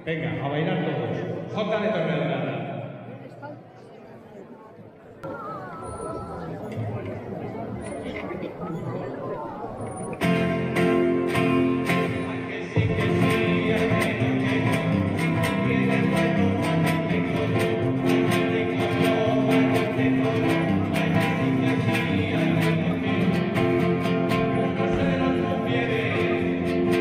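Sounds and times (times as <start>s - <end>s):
folk dance music on guitars: 10.0s - 27.0s.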